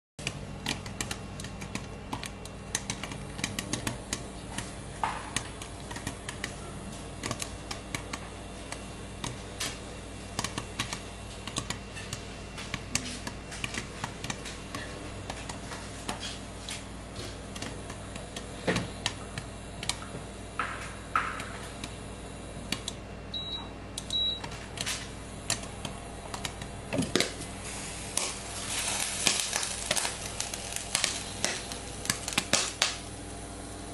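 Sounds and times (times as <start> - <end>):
popcorn popping against lid: 0.2 - 16.4, 17.3 - 22.0, 24.0 - 33.9
low steady hum: 0.2 - 33.9.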